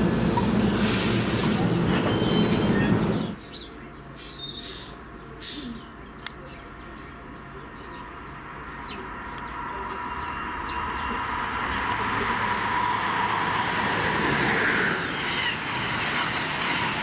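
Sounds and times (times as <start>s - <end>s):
train rail hum: 0.0s - 17.0s
birds chirping: 1.4s - 12.8s.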